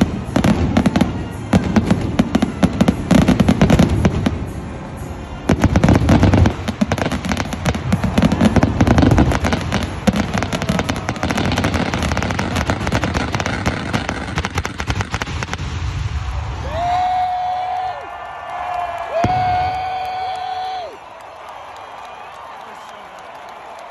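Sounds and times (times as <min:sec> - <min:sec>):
fireworks booming and crackling: 0:00.0 - 0:16.8, 0:19.2 - 0:20.0.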